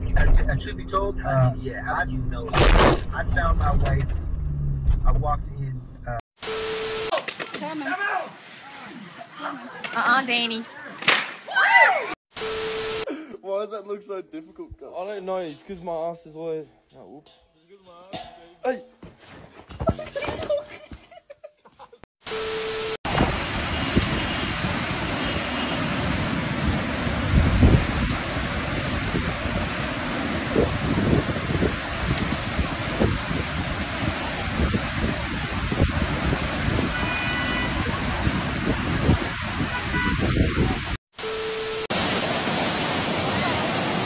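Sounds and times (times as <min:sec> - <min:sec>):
torrent of water rushing: 0:23.1 - 0:44.0
wind buffeting microphone: 0:26.1 - 0:37.1, 0:37.7 - 0:41.0.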